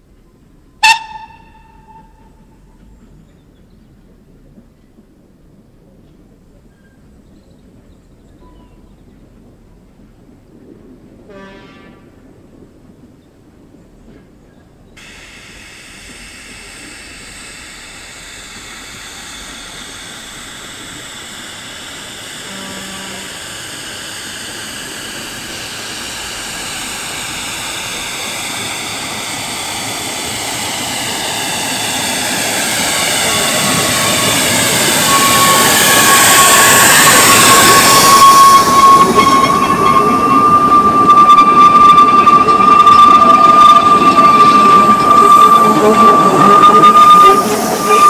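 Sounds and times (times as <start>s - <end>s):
steam locomotive passing: 0.0s - 48.0s
high steady note: 0.8s - 2.3s, 15.0s - 48.0s.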